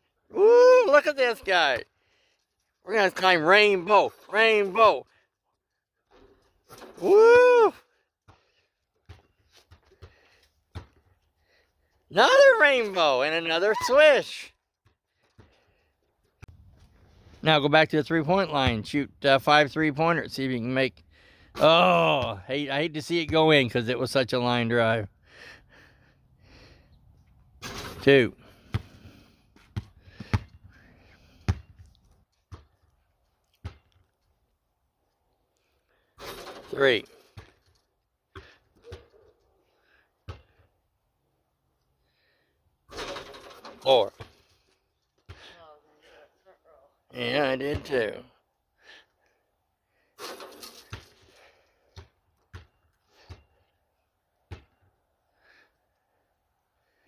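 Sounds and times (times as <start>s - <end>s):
basketball bouncing on asphalt: 8.2s - 11.4s, 14.6s - 15.9s, 28.6s - 33.0s, 33.6s - 34.2s, 38.3s - 39.1s, 40.2s - 40.7s, 45.2s - 45.6s, 50.8s - 53.7s, 54.4s - 55.0s.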